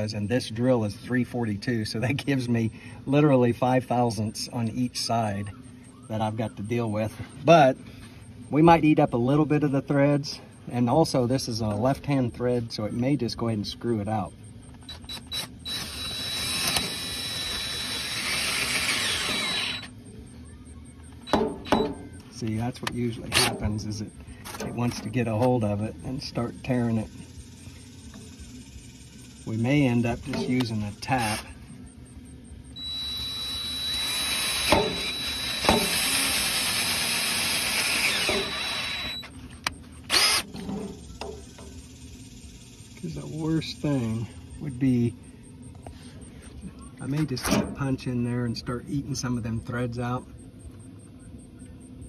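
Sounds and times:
cordless drill whirring grind: 14.8 - 19.9, 21.2 - 21.9, 32.8 - 39.3, 40.1 - 40.5.

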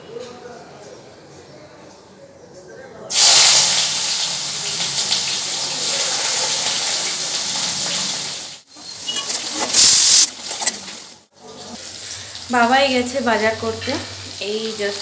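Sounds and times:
vegetables sizzling in hot oil: 3.1 - 15.0.

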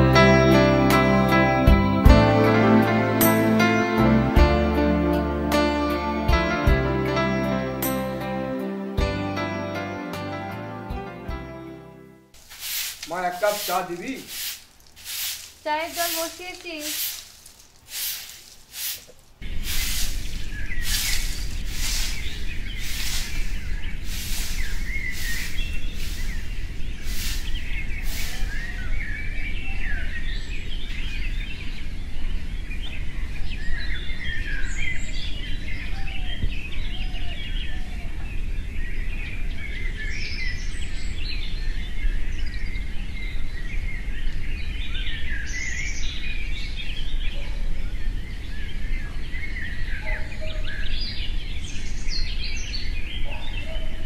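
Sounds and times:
short rasping strokes: 12.4 - 28.6
small birds chirping: 12.4 - 54.0.

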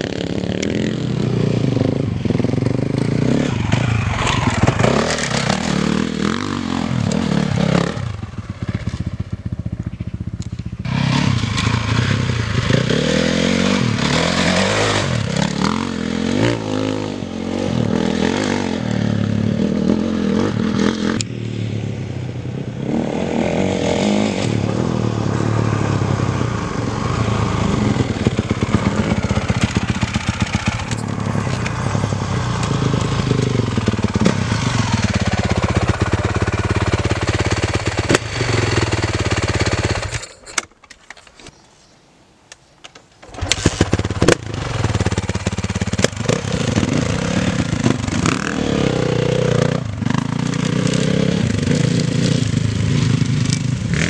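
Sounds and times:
dirt bike engine revving: 0.0 - 9.8, 10.7 - 21.7, 22.7 - 40.3, 43.2 - 54.0.

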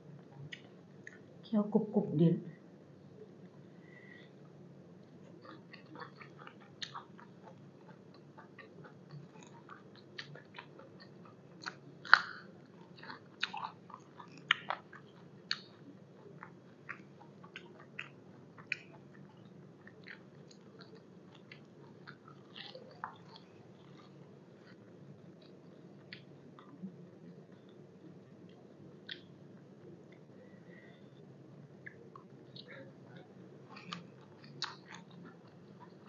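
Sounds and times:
crunchy chewing of raw vegetables: 5.0 - 30.3, 33.6 - 36.0.

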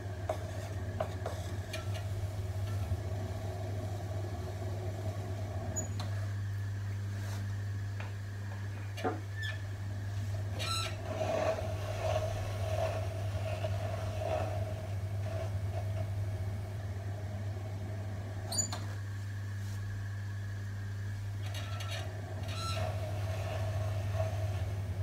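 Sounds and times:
potter's wheel motor hum: 0.0 - 25.0
soft rubbing sounds: 7.0 - 7.7, 11.0 - 16.4, 18.9 - 20.1.

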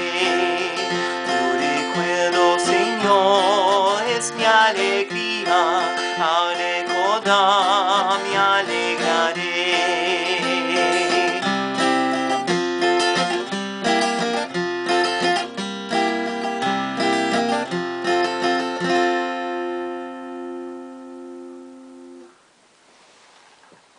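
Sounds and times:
acoustic guitar playing: 0.0 - 22.6.

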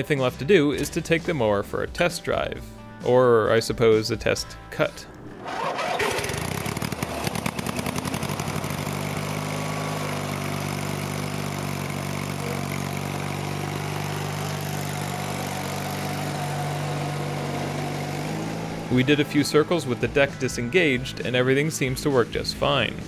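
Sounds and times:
lawn tractor engine starting and running: 5.1 - 23.0.

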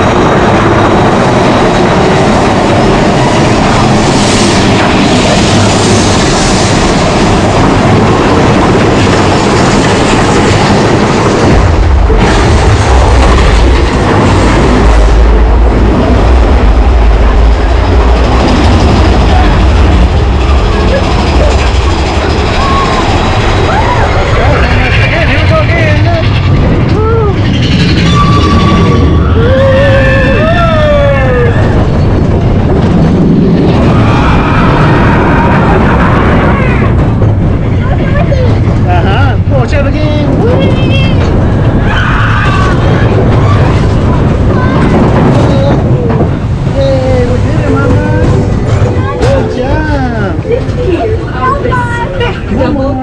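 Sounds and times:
roller coaster rattling on track: 0.0 - 53.0
riders whooping: 20.5 - 25.4, 26.9 - 32.1, 33.6 - 37.2, 41.6 - 45.7.

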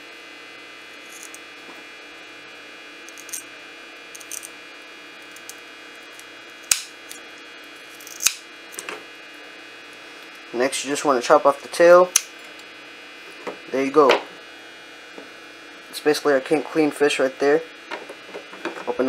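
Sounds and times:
steady electrical hum: 0.0 - 19.0
scissors snipping fish fins: 8.0 - 8.4.

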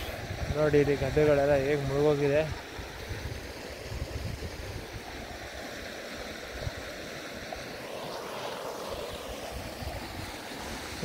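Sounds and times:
wind buffeting microphone: 0.0 - 5.3.

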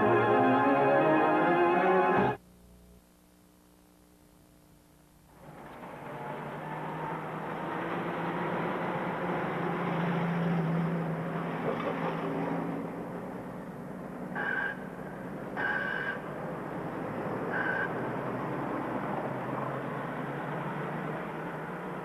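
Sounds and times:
city street traffic: 5.4 - 22.0.

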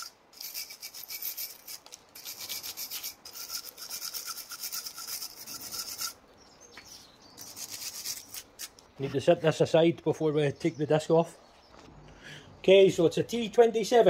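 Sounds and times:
wire brush scrubbing metal: 0.0 - 6.2, 7.4 - 9.6.

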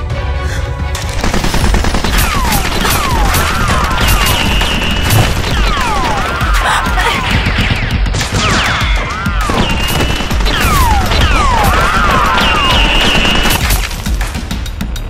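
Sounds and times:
automatic gunfire: 1.1 - 6.9, 8.2 - 14.2.

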